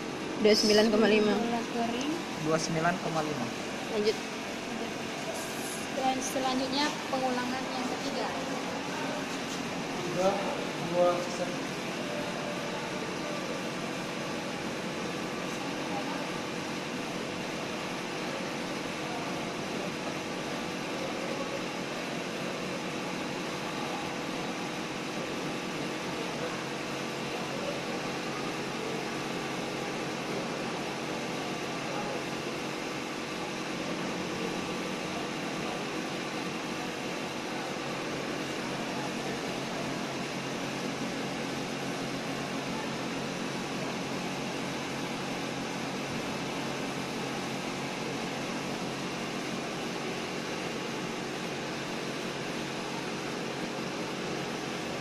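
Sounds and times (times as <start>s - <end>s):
background hum and hiss: 0.0s - 55.0s.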